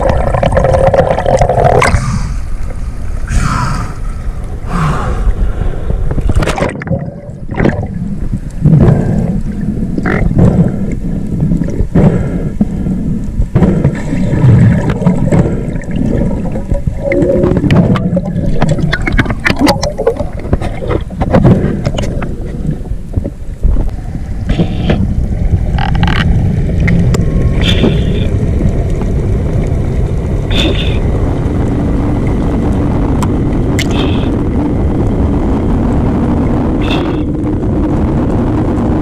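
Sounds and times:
underwater rushing and rumble: 0.0s - 39.0s
underwater clicks and knocks: 6.0s - 12.0s, 13.4s - 23.9s, 24.5s - 28.0s
water sloshing against camera: 13.2s - 28.3s.

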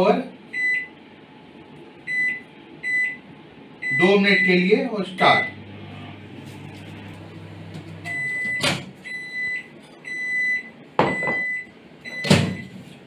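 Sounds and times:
microwave oven humming: 0.0s - 13.0s
high beeps: 8.0s - 12.3s.

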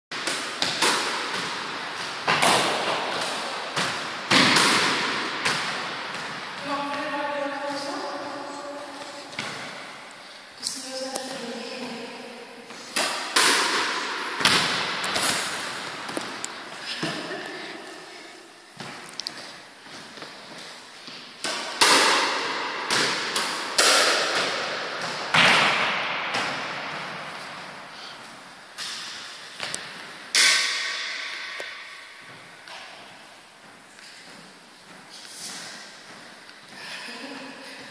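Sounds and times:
squash ball knocks with echo: 0.2s - 7.0s, 12.9s - 15.4s, 21.4s - 27.2s, 30.3s - 32.0s.

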